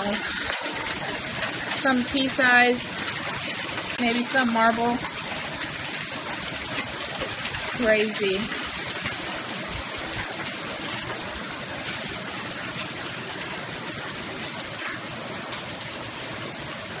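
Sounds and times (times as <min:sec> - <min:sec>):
hail striking the ground: 0:00.0 - 0:17.0.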